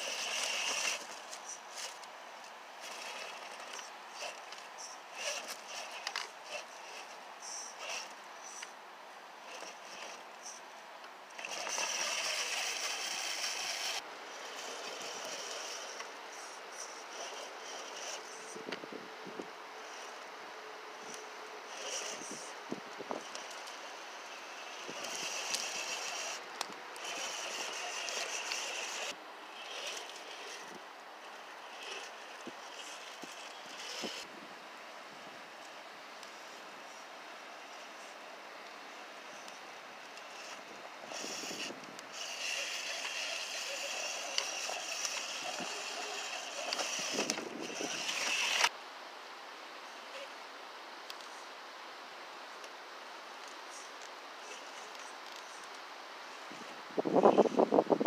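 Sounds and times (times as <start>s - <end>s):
electric motor whining: 0.0s - 2.1s, 11.4s - 16.1s, 21.0s - 34.3s, 40.2s - 48.7s
wind hiss: 0.0s - 8.8s, 9.4s - 58.0s.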